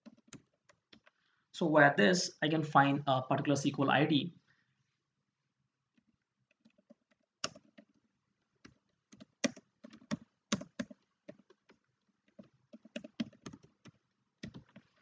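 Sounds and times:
computer keyboard typing: 0.0 - 1.1, 6.6 - 7.9, 8.6 - 15.0.

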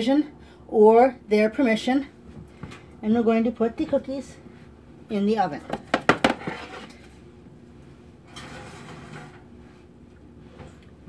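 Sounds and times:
baking sheet scraping onto oven rack: 6.2 - 7.0, 8.3 - 9.5.

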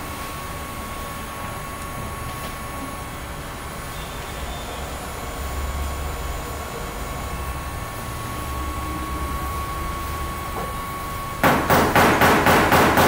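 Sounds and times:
faint whine: 0.0 - 11.4
workshop hum: 0.0 - 13.0
rapid sharp knocks: 11.4 - 13.0.

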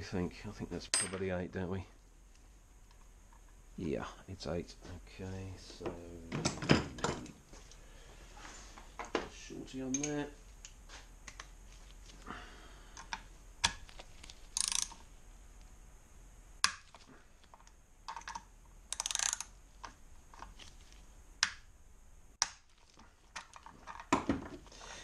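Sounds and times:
socket ratchet clicking: 14.5 - 15.0, 18.1 - 19.5.

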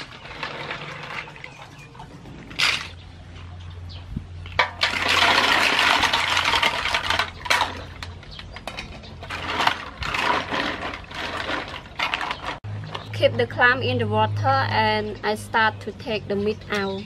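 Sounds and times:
water sloshing: 0.0 - 13.0.

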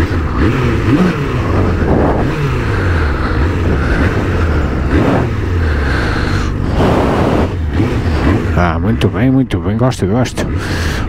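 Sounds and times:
motorcycle engine running: 0.0 - 11.0
wind noise: 0.4 - 8.5.

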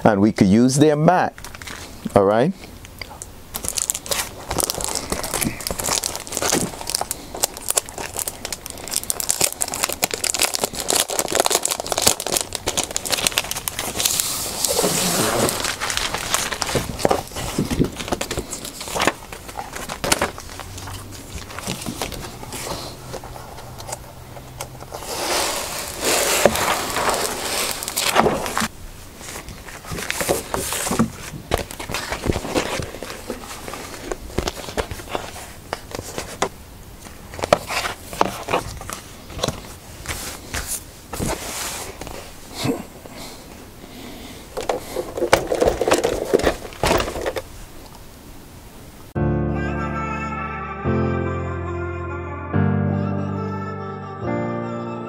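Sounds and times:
stiff plastic crinkling: 3.5 - 42.6, 44.4 - 48.0.

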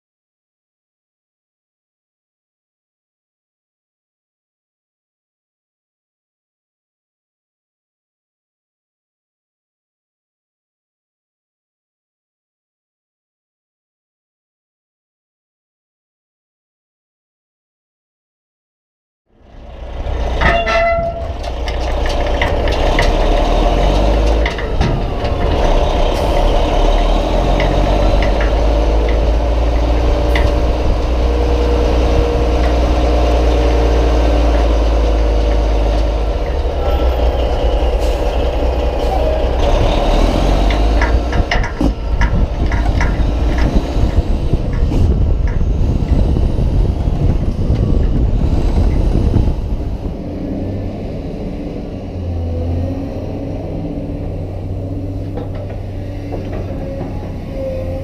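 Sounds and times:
truck engine rumble: 19.3 - 58.0
knocks and rattles of truck bed: 20.2 - 26.1, 40.6 - 46.2.

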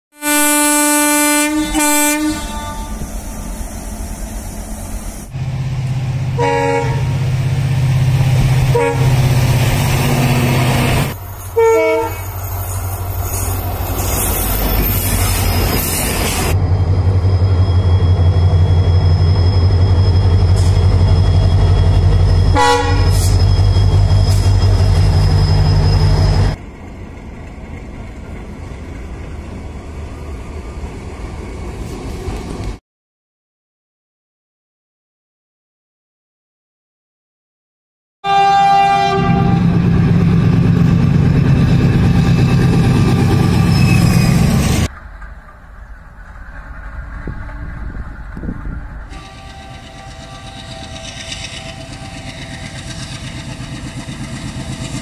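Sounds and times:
train horn blasts: 0.1 - 3.1, 6.4 - 7.2, 8.7 - 9.4, 10.4 - 12.3, 22.4 - 23.4, 38.2 - 39.8, 49.1 - 53.2
diesel locomotive engines droning: 0.2 - 32.8, 38.3 - 55.0
trains rumbling on rails: 0.2 - 32.8, 38.3 - 55.0.

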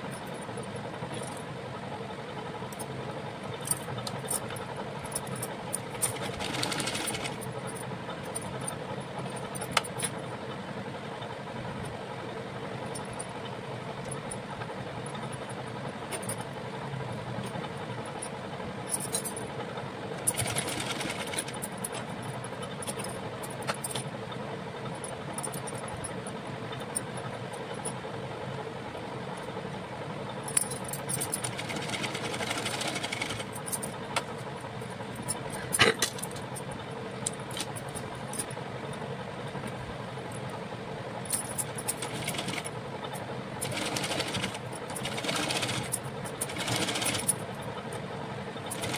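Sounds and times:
sewing machine stitching: 5.8 - 7.5, 20.2 - 21.7, 31.2 - 33.6, 41.6 - 42.8, 43.6 - 47.4, 48.7 - 48.9.

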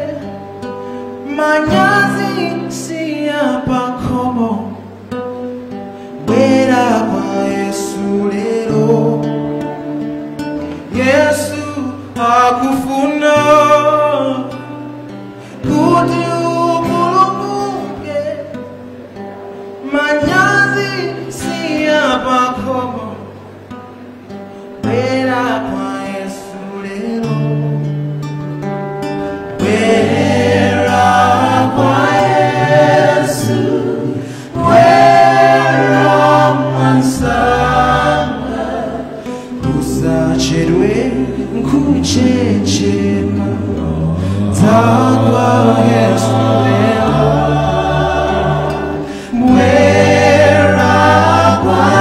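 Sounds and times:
acoustic guitar: 0.0 - 52.0
person singing gospel song: 1.2 - 5.0, 6.2 - 9.3, 15.4 - 18.5, 29.5 - 52.0.

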